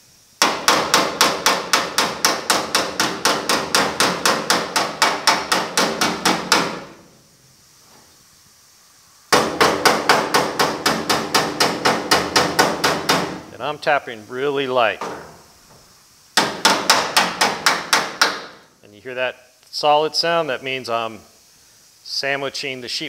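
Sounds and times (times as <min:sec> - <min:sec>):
hammer tapping on sheet metal: 0:00.4 - 0:07.0, 0:09.3 - 0:13.4, 0:16.4 - 0:18.6.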